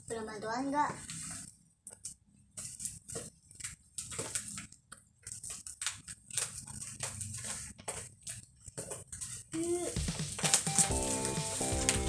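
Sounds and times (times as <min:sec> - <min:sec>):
gift wrapping crinkling and tearing: 0:02.7 - 0:12.0.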